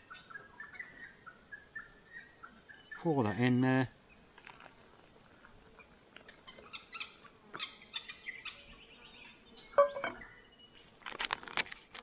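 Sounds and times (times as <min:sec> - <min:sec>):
small birds chirping: 0:00.0 - 0:12.0
metal mug knocking: 0:09.8 - 0:10.2.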